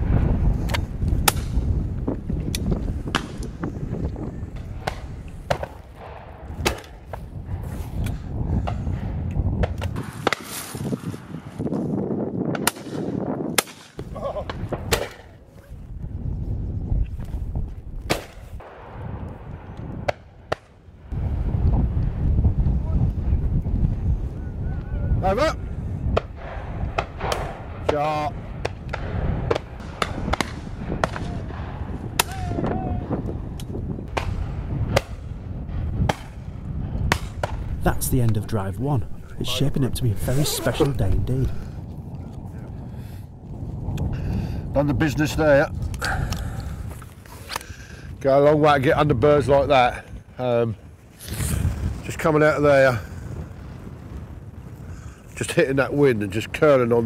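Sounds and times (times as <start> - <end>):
wind buffeting the microphone: 0.0 - 57.0
shotgun shots: 26.2 - 32.4.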